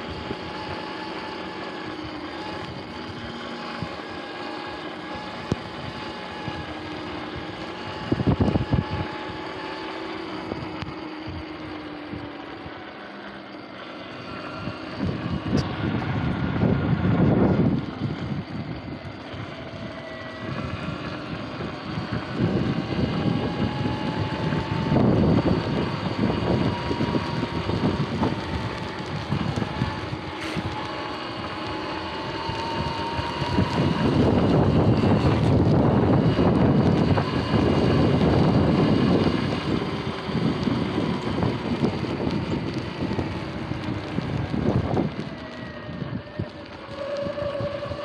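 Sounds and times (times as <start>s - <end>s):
wind buffeting microphone: 0.0s - 13.1s, 14.1s - 48.0s
electric motor whine: 0.0s - 48.0s
tyre hiss: 30.3s - 32.0s.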